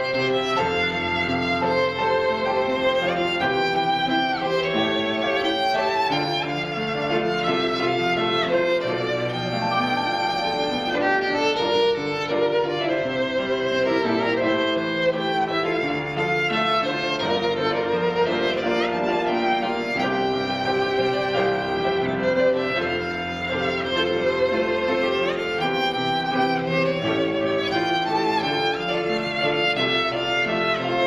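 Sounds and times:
piano accompaniment: 0.0s - 31.0s
violin melody: 0.0s - 31.0s.

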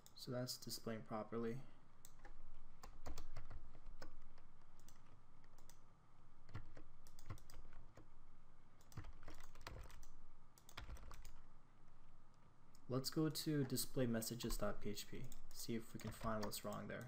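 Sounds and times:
keyboard typing: 2.0s - 5.8s, 6.4s - 8.1s, 8.8s - 11.5s, 13.6s - 17.0s.

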